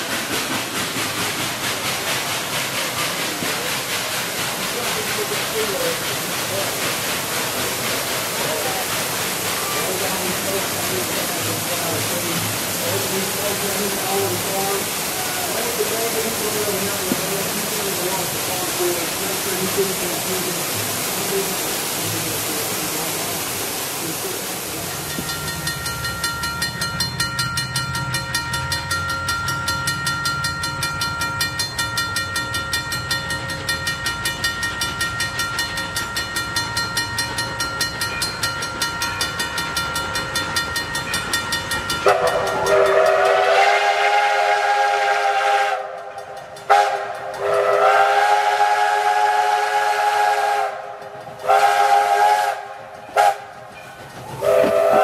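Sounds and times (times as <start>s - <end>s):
falling water: 0.0s - 27.8s, 35.2s - 55.0s
steam locomotive chuffing: 0.0s - 55.0s
steam whistle blasts: 42.0s - 53.5s, 54.4s - 55.0s.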